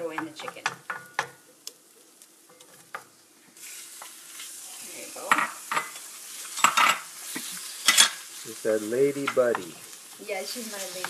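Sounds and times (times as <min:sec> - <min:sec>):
chicken frying in oil: 0:00.0 - 0:11.0
utensil clinking on pan: 0:05.3 - 0:07.1, 0:07.8 - 0:08.2.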